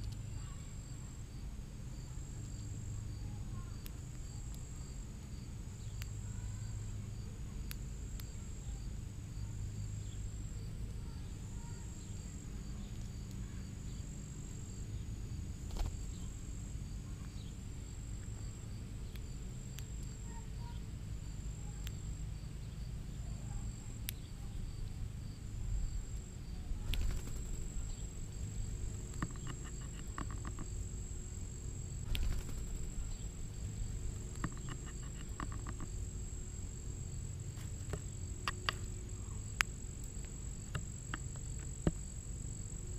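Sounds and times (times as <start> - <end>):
insects calling in high pulses: 0.0 - 42.9
rapid ticks: 26.8 - 42.2
sharp clicks: 26.9 - 30.8, 32.0 - 36.0.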